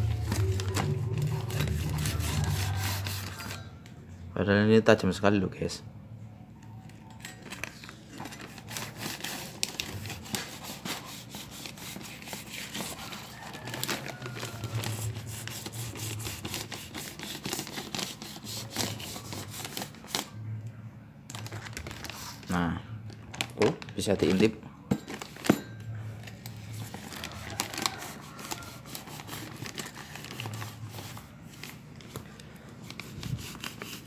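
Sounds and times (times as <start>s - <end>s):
paper envelope being cut and torn: 0.0s - 3.6s, 7.4s - 20.4s, 21.3s - 22.5s, 26.6s - 31.8s, 32.8s - 34.0s.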